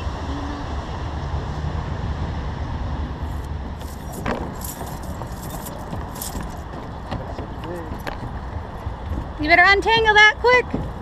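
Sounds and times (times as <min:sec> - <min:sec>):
metallic jingling and clicks: 0:03.8 - 0:06.9.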